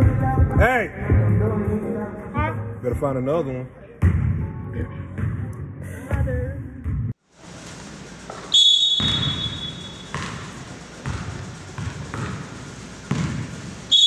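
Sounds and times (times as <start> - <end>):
basketballs bouncing on gym floor: 6.1 - 7.2, 8.3 - 13.9.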